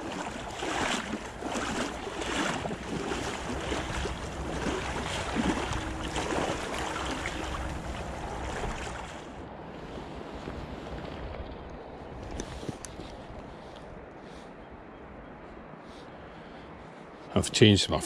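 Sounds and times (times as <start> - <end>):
footsteps splashing in water: 0.0 - 9.4
river rushing: 0.0 - 9.4
wind on microphone: 0.0 - 15.8.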